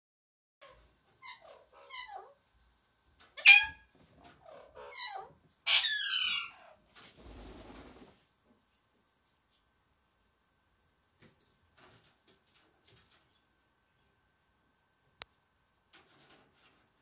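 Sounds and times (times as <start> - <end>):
parakeet mimicking cat meow: 0.6 - 2.4, 3.4 - 3.8, 4.4 - 6.8.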